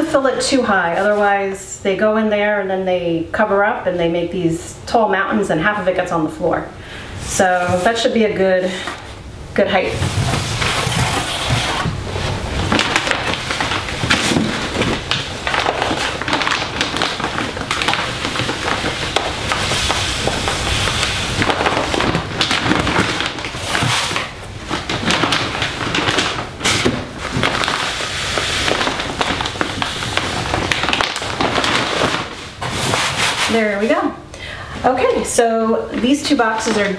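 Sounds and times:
cat litter pouring: 9.9 - 34.0.

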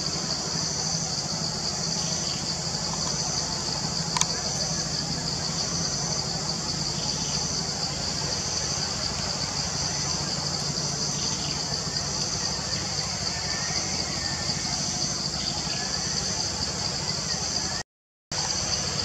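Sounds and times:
cicada chorus drone: 0.0 - 19.0.

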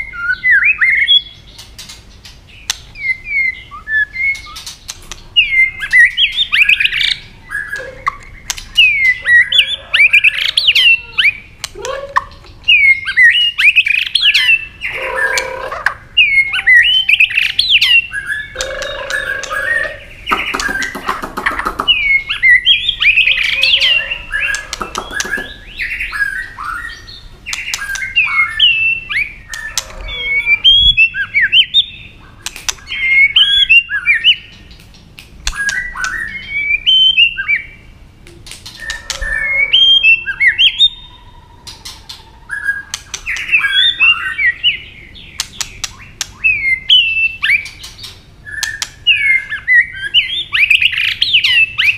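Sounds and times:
bird harsh buzzy calls: 0.0 - 38.0, 38.6 - 51.9
bird singing whistled phrases: 3.0 - 4.6, 16.2 - 21.0, 35.5 - 37.8, 48.4 - 51.9.

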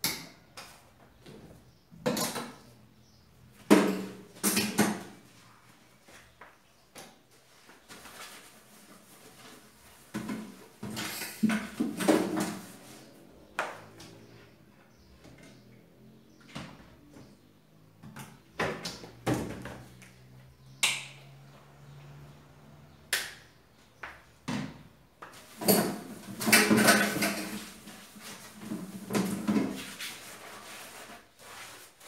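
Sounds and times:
dishes clattering in a steel sink: 10.2 - 12.5, 25.6 - 27.7.

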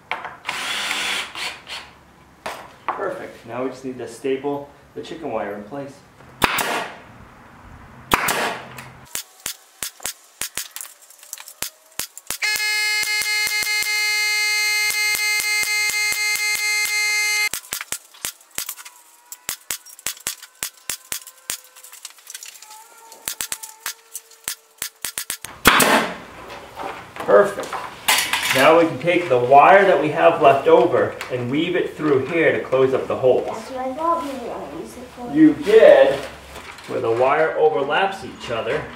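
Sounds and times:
pneumatic staple gun firing: 0.4 - 1.9, 6.4 - 7.0, 8.1 - 10.8, 11.6 - 12.8, 17.5 - 18.9, 23.3 - 26.2
loud steady high tone: 12.3 - 17.6.

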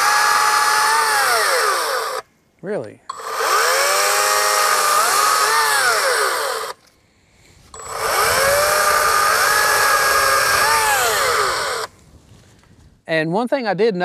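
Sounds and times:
chainsaw cutting into tree: 0.0 - 2.3, 3.1 - 6.8, 7.8 - 11.9.

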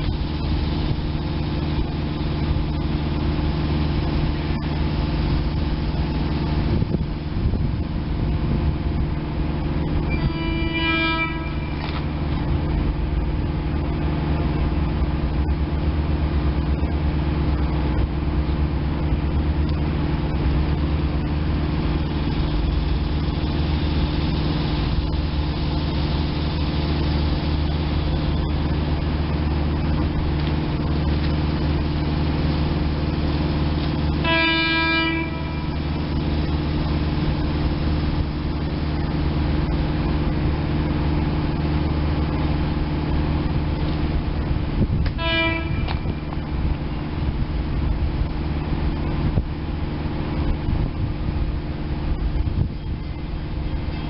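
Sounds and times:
idling rail equipment drone: 0.0 - 54.0
train horn blast: 10.0 - 12.1, 34.1 - 36.1, 45.0 - 46.6.

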